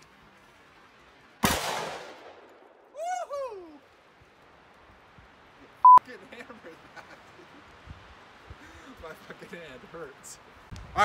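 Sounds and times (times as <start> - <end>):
revolver gunshot: 1.4 - 2.4
person whooping: 2.9 - 4.0.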